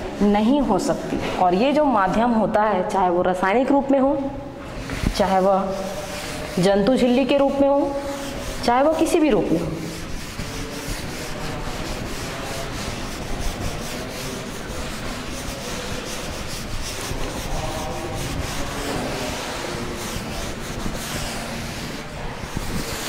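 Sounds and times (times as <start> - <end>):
chalk scratching on blackboard: 4.7 - 23.0.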